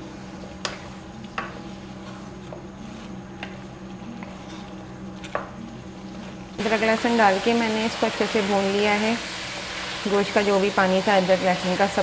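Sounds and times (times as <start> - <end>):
steady low hum: 0.0 - 12.0
meat sizzling in a pan: 6.6 - 12.0.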